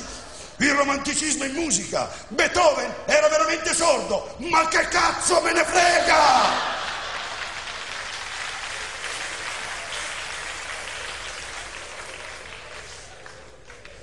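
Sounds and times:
audience applauding: 6.1 - 14.0.

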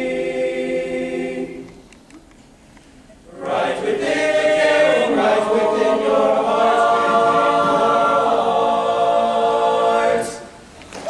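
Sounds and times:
male a cappella group singing: 0.0 - 1.8, 3.3 - 10.6.

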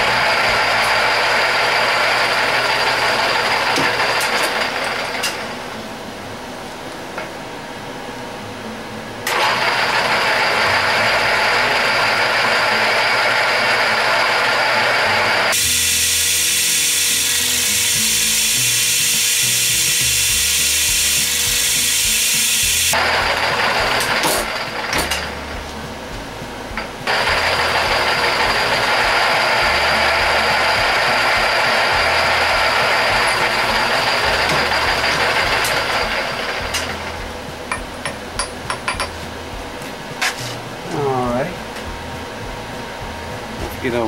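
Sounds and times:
drill press boring into metal: 0.0 - 5.4, 9.3 - 25.3, 27.1 - 37.0.

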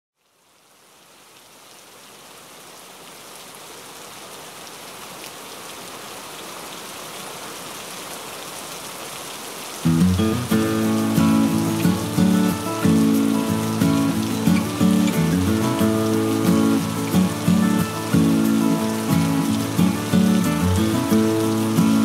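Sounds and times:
steady rain: 0.2 - 22.0
music: 9.9 - 22.0.

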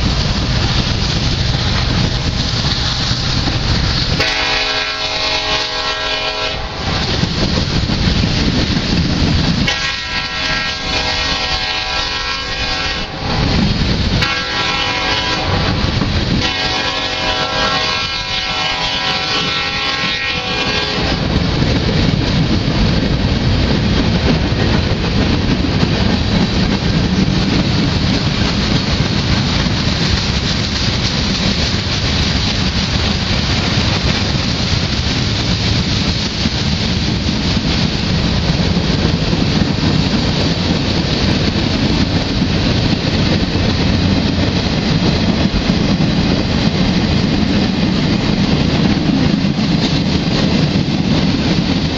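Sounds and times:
freight train rolling past: 0.0 - 51.9
distant train horn blasts: 4.2 - 7.2, 9.6 - 13.6, 14.2 - 21.3.

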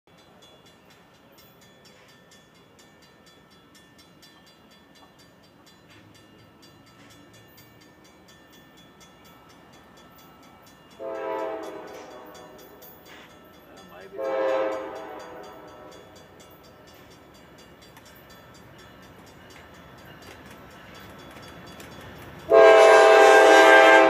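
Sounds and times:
railroad crossing bell ringing: 0.1 - 24.0
locomotive air horn blast: 11.0 - 12.6, 14.2 - 16.0, 22.5 - 24.0.

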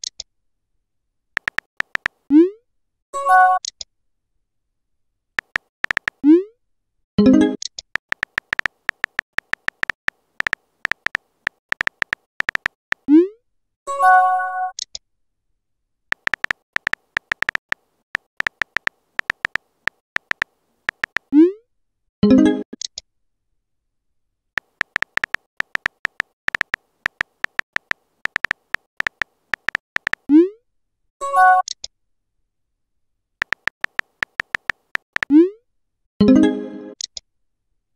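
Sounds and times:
phone keyboard taps: 1.4 - 2.2, 5.4 - 6.2, 7.9 - 13.0, 16.1 - 21.3, 24.6 - 30.3, 33.4 - 35.3.

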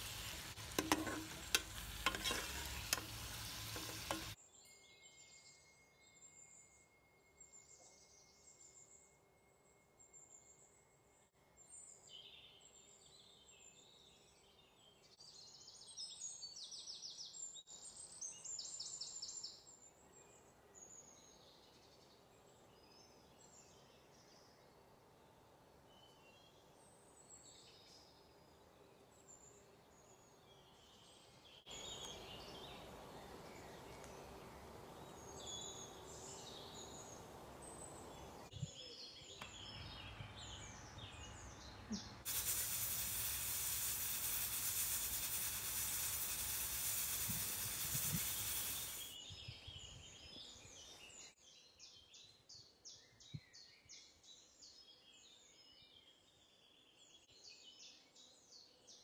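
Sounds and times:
pressure cooker venting steam: 0.0 - 4.4, 42.3 - 49.2.

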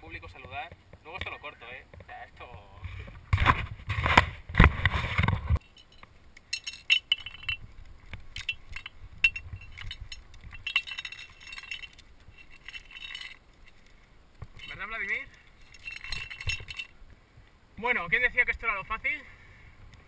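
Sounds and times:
climbing nuts clinking: 5.6 - 17.0.

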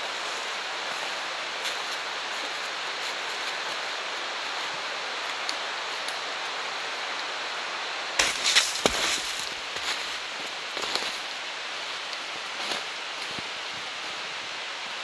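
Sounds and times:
outdoor background hiss: 0.0 - 15.0
footsteps on leaf litter: 8.2 - 11.3.

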